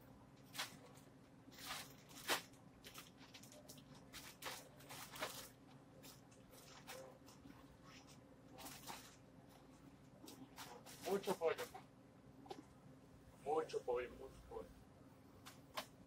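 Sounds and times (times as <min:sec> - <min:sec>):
steady low hum: 0:00.0 - 0:16.0
food containers rustling and knocking: 0:00.4 - 0:12.7.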